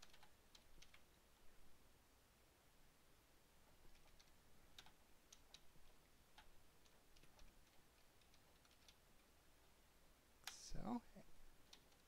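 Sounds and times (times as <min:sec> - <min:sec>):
keyboard keystrokes clicking: 0:00.0 - 0:01.0, 0:03.9 - 0:05.7, 0:06.4 - 0:09.0.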